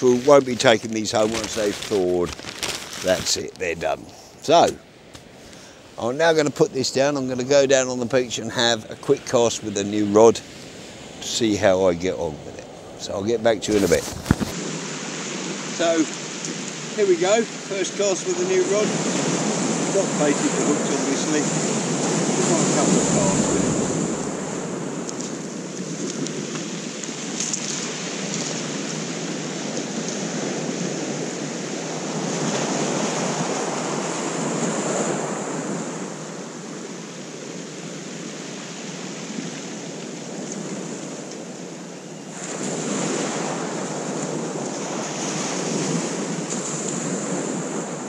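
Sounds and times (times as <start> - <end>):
surf breaking on shingle beach: 0.0 - 37.0, 42.3 - 48.0
wind buffeting microphone: 5.9 - 17.4, 18.7 - 36.4.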